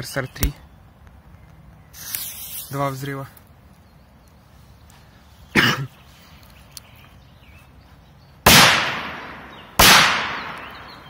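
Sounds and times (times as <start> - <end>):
sharp crack: 8.4 - 11.0
firecracker bangs with echo: 8.5 - 10.9.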